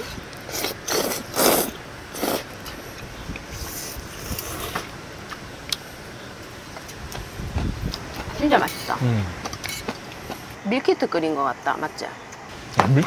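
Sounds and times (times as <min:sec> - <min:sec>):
noisy eating mouth sounds: 0:00.0 - 0:05.8.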